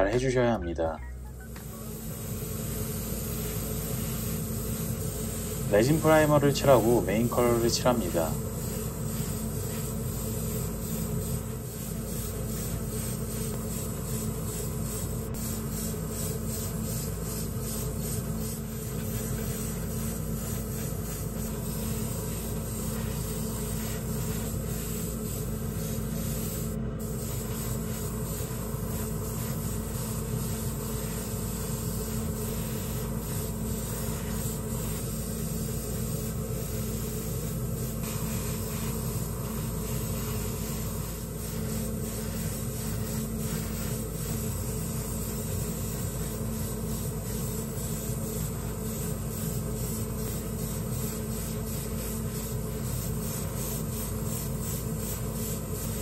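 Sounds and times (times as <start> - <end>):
airbrush spraying hiss: 1.4 - 56.0.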